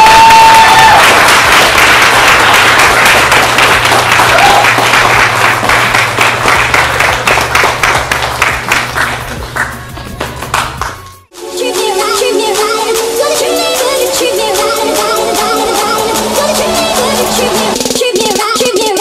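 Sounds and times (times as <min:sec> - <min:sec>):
crowd applauding: 0:00.0 - 0:11.1.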